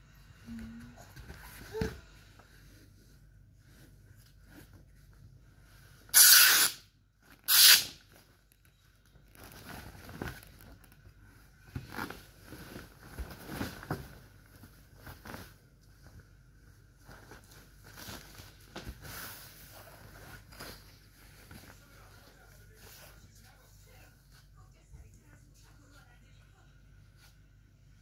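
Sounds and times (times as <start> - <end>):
rustling and crinkling: 0.5 - 6.1, 7.1 - 24.7.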